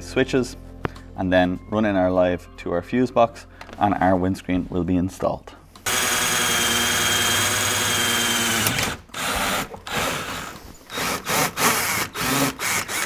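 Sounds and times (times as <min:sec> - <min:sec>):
power drill drilling: 0:05.8 - 0:13.0.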